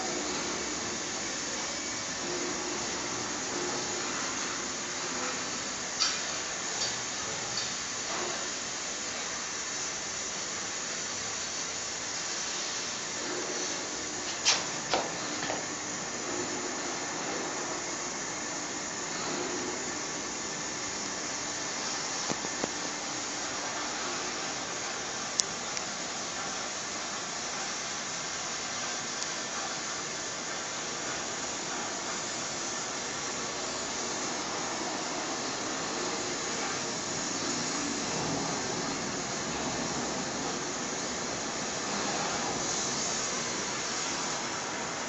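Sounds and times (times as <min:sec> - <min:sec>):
burning charcoal hissing: 0:00.0 - 0:45.0.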